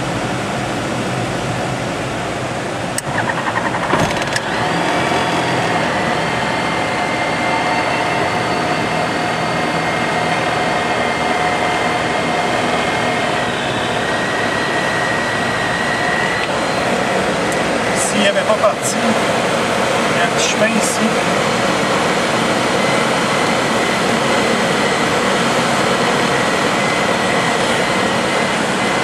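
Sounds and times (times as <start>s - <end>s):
aircraft engine running: 0.0s - 29.0s
cockpit wind noise: 2.2s - 29.0s
engine cranking: 3.0s - 4.6s.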